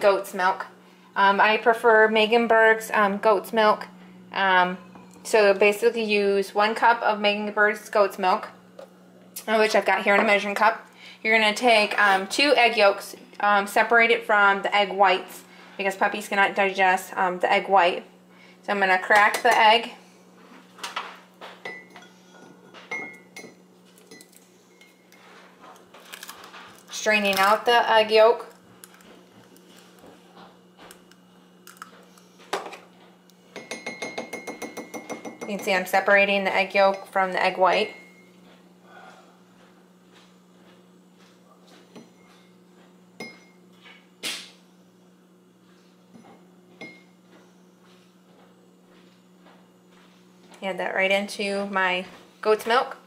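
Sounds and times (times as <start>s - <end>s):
steady low hum: 0.0s - 53.0s
egg tapping on ceramic mug: 33.6s - 35.7s.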